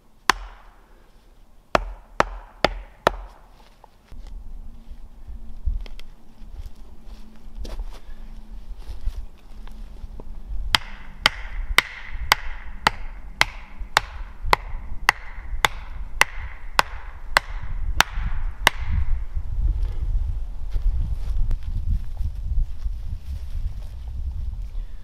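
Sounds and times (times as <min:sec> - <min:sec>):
hatchet hammering wooden stake: 0:00.2 - 0:00.8, 0:01.7 - 0:03.6, 0:10.7 - 0:19.2.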